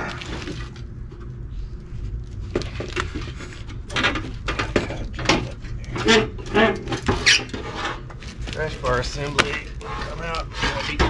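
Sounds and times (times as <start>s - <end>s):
metal clanks and knocks: 2.8s - 8.1s.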